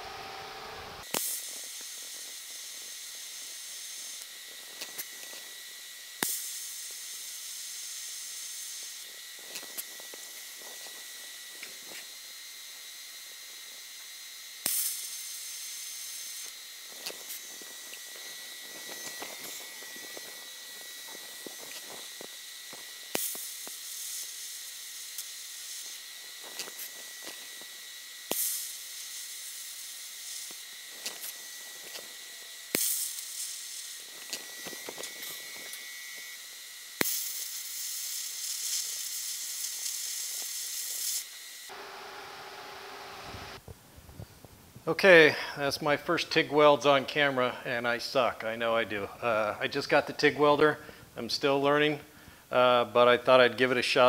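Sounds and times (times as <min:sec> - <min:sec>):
high whine: 0:00.0 - 0:37.6
welder arc hissing: 0:00.0 - 0:54.0.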